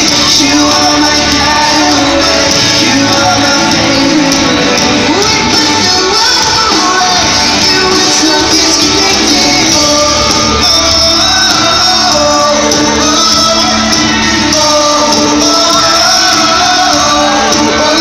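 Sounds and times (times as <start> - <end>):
bass guitar: 0.0 - 18.0
drums: 0.0 - 18.0
electric guitars: 0.0 - 18.0
person singing: 0.0 - 18.0.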